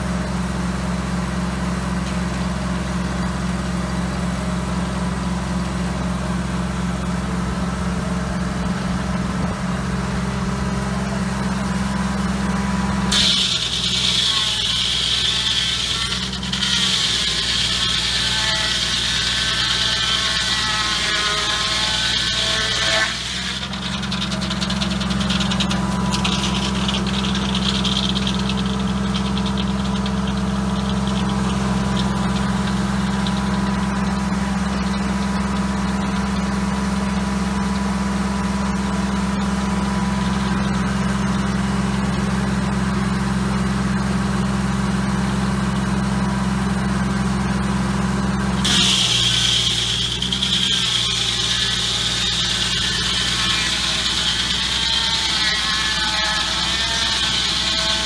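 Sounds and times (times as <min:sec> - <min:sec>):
tractor engine running: 0:00.0 - 0:20.6, 0:23.1 - 0:58.0
saw blade faint whine: 0:11.0 - 0:36.5, 0:48.6 - 0:58.0
saw cutting log hiss: 0:13.1 - 0:34.2, 0:48.6 - 0:58.0.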